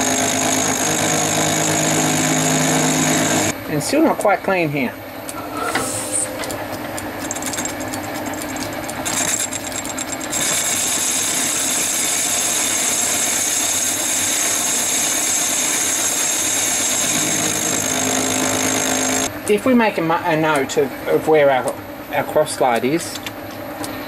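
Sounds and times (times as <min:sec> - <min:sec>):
metal lathe running: 0:00.0 - 0:03.6, 0:05.3 - 0:19.3.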